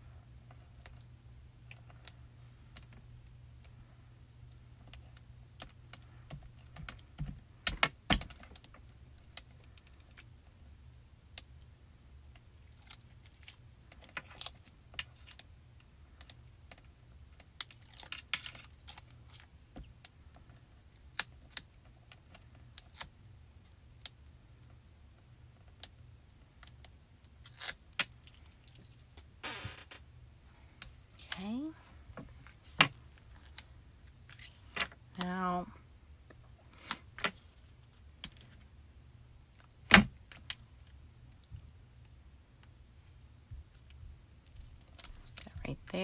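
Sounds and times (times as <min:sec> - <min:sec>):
tape liner crackling: 0:17.5 - 0:19.5, 0:27.4 - 0:30.0
paper clicks and crinkles: 0:34.3 - 0:34.8.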